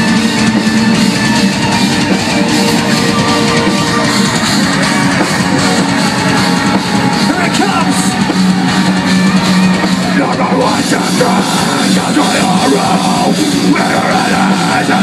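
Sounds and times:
bass guitar: 0.0s - 15.0s
distorted electric guitars: 0.0s - 15.0s
drum kit: 0.0s - 15.0s
keyboards: 0.0s - 15.0s
vocalist singing into microphone: 10.0s - 15.0s.

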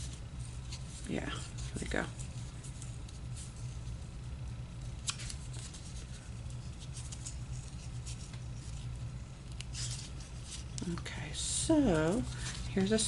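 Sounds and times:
steady low hum: 0.0s - 13.0s
paper crackling in fingers: 4.8s - 11.0s.

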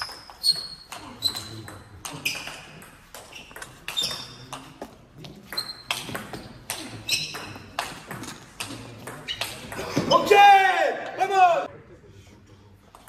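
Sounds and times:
shoe squeaks: 0.0s - 9.7s.

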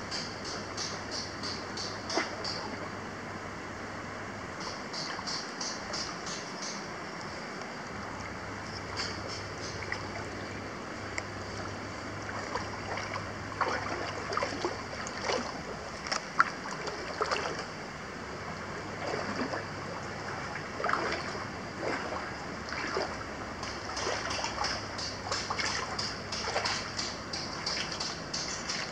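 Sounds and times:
water flowing and trickling: 7.1s - 17.8s, 18.5s - 28.9s
small water splashes: 8.2s - 17.8s, 18.9s - 28.9s.

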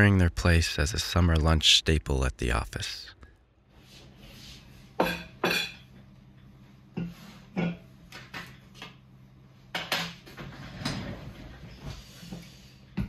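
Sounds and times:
steady low hum: 0.0s - 13.0s
chair scraping: 10.3s - 12.2s.

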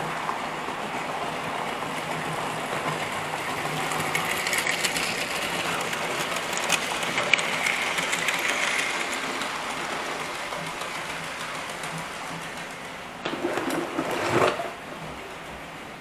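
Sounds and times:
model train motor whirring: 3.2s - 12.8s.

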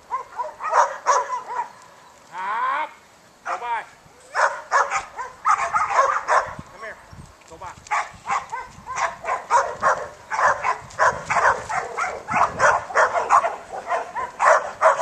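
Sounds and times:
dog barking rapidly: 0.1s - 1.7s, 4.3s - 6.6s, 7.9s - 15.0s.

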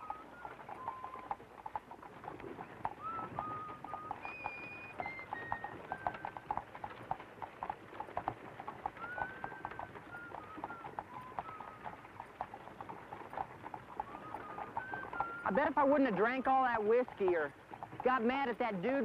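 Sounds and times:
whistle-like tune: 0.0s - 1.4s, 3.0s - 6.4s, 9.0s - 12.1s, 14.0s - 16.6s
horse hooves clip-clopping: 0.0s - 19.0s.

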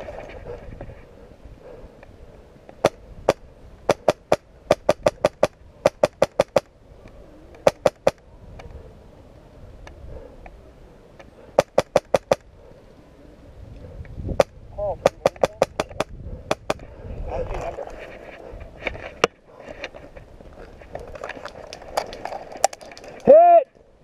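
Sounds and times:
airsoft rifle firing: 2.8s - 6.7s, 7.6s - 8.2s, 11.6s - 12.4s.

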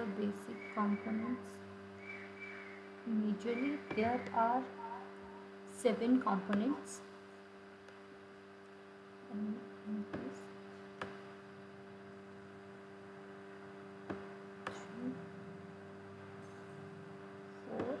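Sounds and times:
electrical mains hum: 0.0s - 18.0s
soft vocal sound: 9.2s - 10.5s.

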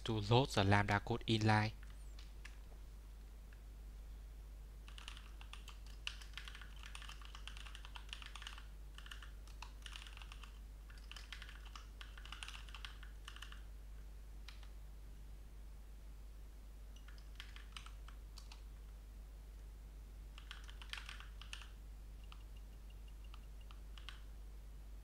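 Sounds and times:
computer keyboard typing: 4.8s - 13.7s, 14.4s - 14.7s, 17.0s - 18.6s, 20.3s - 24.3s.

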